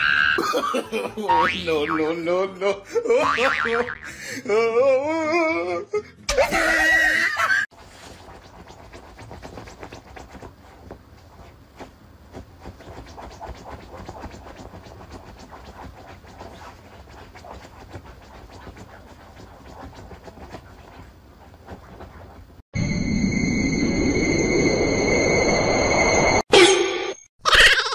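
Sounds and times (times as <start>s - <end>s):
scratching and rustling bedding: 7.7s - 22.6s.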